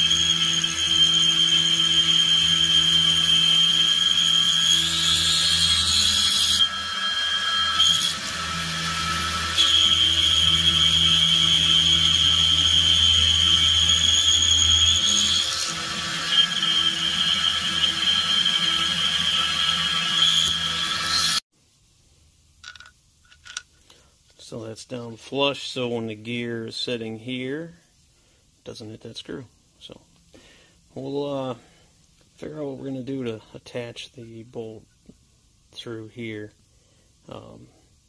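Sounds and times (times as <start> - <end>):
milling cutter high whine: 0.0 - 21.4.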